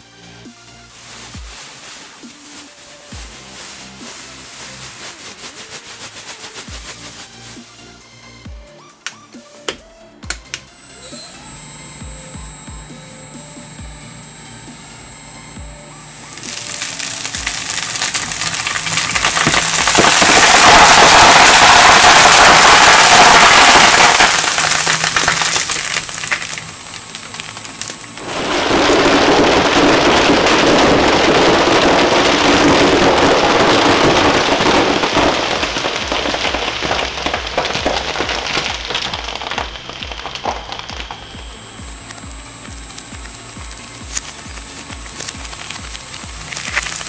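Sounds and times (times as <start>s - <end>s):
shredder crushing foam beads: 0.0s - 8.4s, 10.3s - 47.0s.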